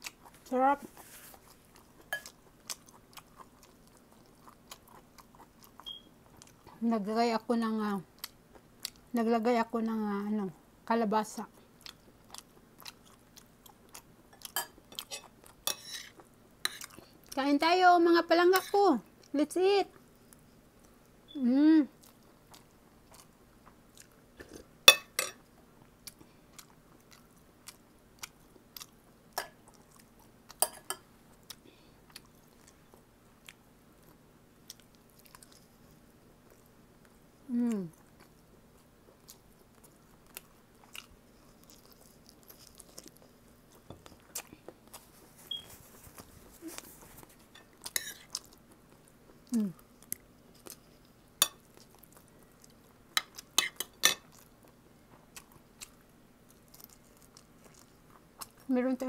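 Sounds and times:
chewing and smacking: 0.0 - 6.8, 8.2 - 9.1, 11.4 - 17.4, 21.9 - 24.7, 25.4 - 37.2, 37.9 - 58.7
person humming mm: 21.4 - 21.9, 37.4 - 38.0, 49.5 - 49.8.

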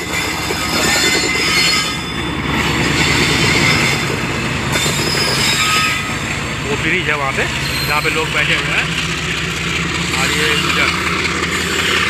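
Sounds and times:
high-pitched wheel squeal: 0.0 - 6.2, 7.4 - 8.7, 10.1 - 12.0
train wheels rumbling and clattering: 0.0 - 12.0.

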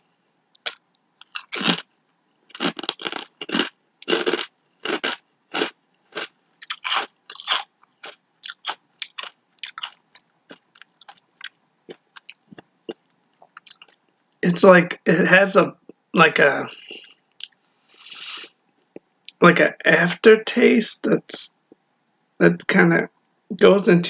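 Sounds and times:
potato chip crunching: 0.6 - 1.9, 2.5 - 12.6.

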